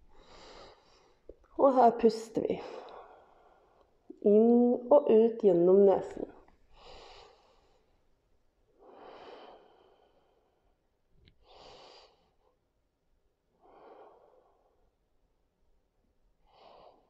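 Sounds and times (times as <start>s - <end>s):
soft breathing through nose: 0.0s - 1.3s, 6.7s - 8.0s, 8.7s - 10.6s, 11.4s - 12.5s, 13.6s - 14.9s, 16.4s - 17.0s.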